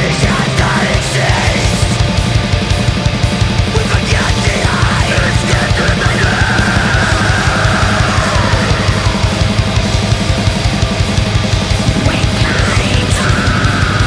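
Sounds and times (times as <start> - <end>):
fast drumming: 0.0 - 14.0
heavy guitars: 0.0 - 14.0
metal music: 0.0 - 14.0.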